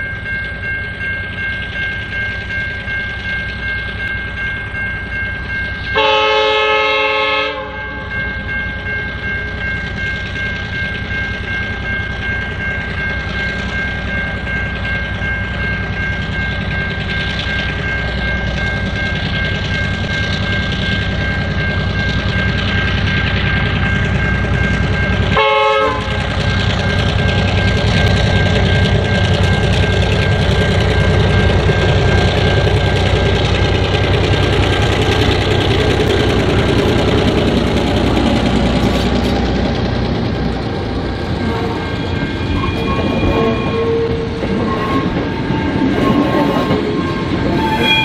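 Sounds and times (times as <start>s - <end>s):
train rumble: 0.0s - 48.0s
locomotive horn: 6.0s - 8.1s, 25.4s - 26.2s, 41.4s - 48.0s.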